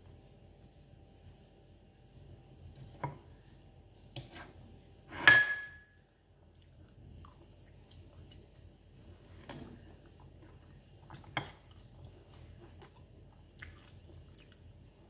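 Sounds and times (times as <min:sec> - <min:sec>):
metal spoon clinking on plate: 0:05.2 - 0:05.9.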